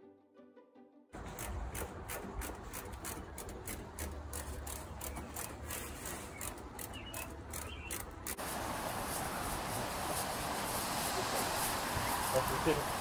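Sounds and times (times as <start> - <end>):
irregular rubbing and clicking: 1.2 - 8.4.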